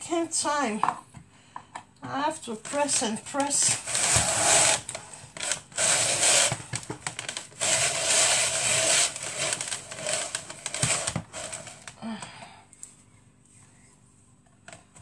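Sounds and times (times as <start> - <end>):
food chopper chopping potatoes: 2.7 - 12.0.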